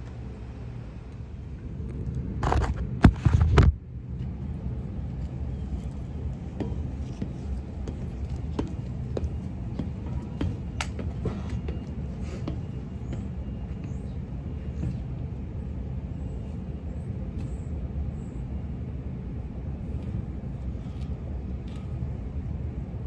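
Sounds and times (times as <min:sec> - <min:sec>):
boots clanking on steel ladder: 0:06.5 - 0:14.2.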